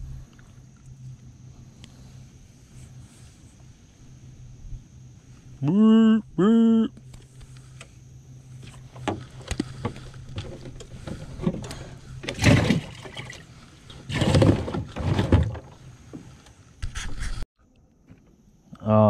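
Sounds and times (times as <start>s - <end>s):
clicks and knocks in a boat: 8.6s - 16.6s
loud rustling and scraping: 13.8s - 17.4s.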